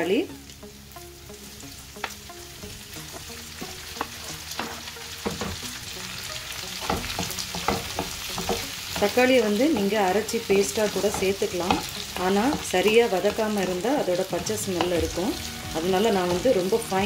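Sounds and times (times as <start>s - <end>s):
food sizzling in a pan: 0.0s - 17.0s
wooden spatula scraping a pan: 4.0s - 5.6s.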